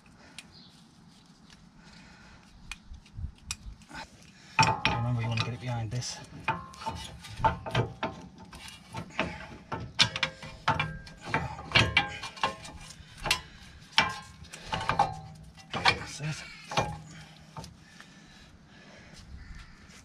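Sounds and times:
metal brake parts clicking and clanking: 4.5 - 17.8.

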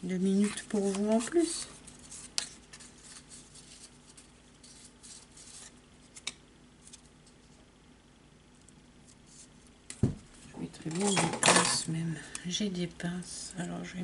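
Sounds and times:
cardstock rustling: 0.2 - 7.1.

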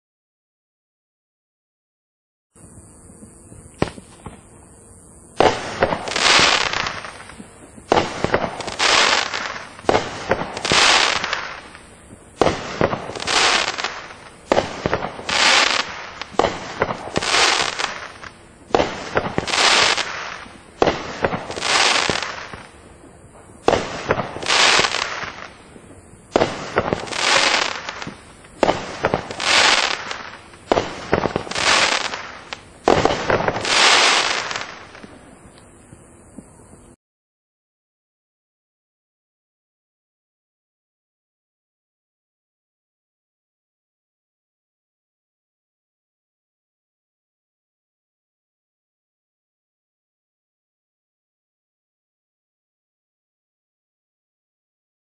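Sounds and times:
faint hiss: 2.6 - 37.0
fireworks bangs: 2.6 - 37.0.

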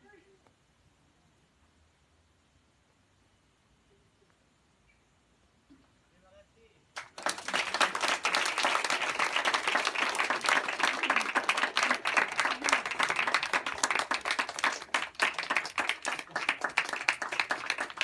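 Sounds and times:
audience applauding: 7.0 - 18.0.

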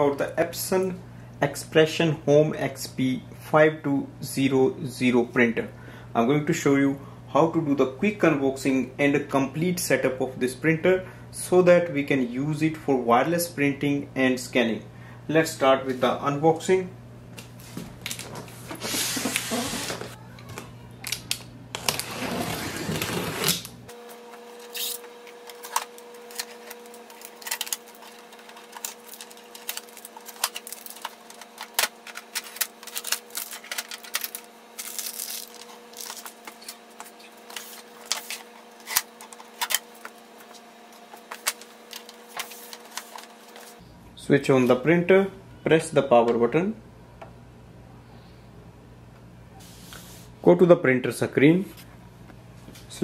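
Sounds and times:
faint steady hum: 0.0 - 53.0
packaging rustling and scraping: 17.6 - 20.2, 21.0 - 43.8.

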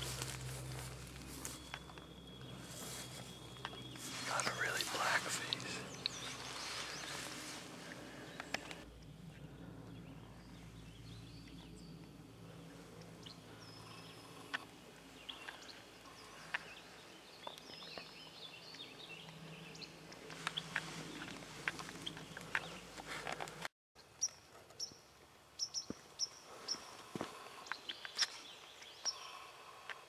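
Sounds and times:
low steady hum: 0.0 - 23.2
faint bird chirps: 1.2 - 21.3
soft rustling: 2.6 - 8.8.

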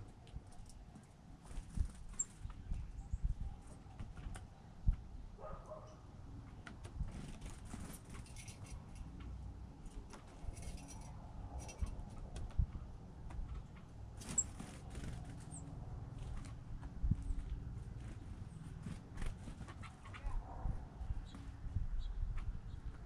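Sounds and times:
birds pecking on wooden deck: 3.6 - 5.0, 6.3 - 20.2.

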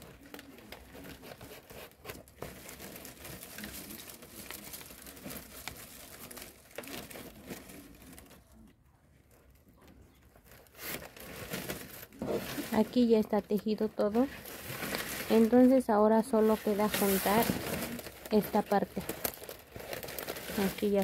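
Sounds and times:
dry palm leaves rustling and crackling: 0.0 - 8.6, 9.8 - 21.0.

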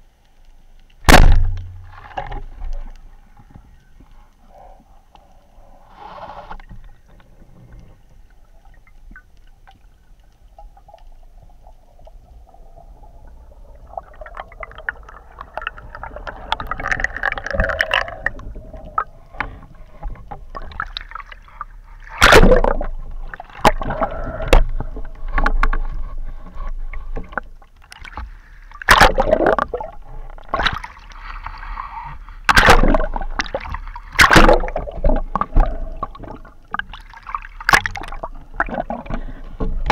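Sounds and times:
bubbling water rush: 11.2 - 25.4, 28.8 - 31.1, 32.5 - 39.9.

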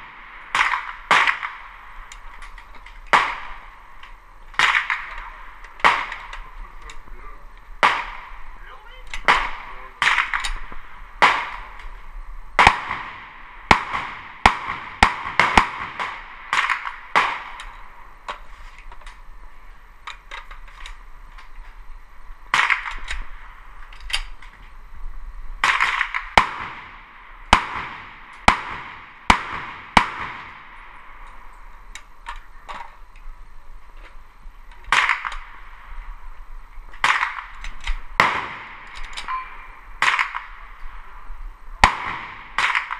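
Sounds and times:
rifle shots with echo: 0.0 - 2.0, 3.1 - 3.8, 4.6 - 6.6, 7.8 - 8.5, 9.2 - 11.9, 12.6 - 17.9, 22.5 - 23.4, 25.6 - 31.2, 34.9 - 35.7, 37.0 - 37.6, 38.2 - 40.7, 41.8 - 42.9.

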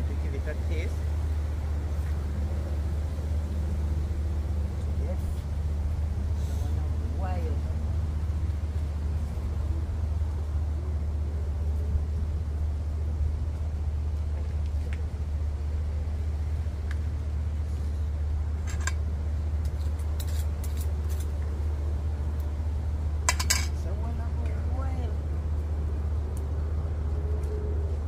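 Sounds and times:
metal utensil clinking on pot: 23.3 - 23.8.

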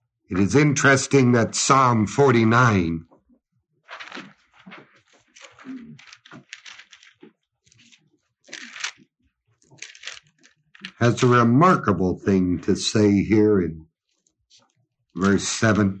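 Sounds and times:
paper pages rustling: 3.8 - 9.0, 9.6 - 11.2.

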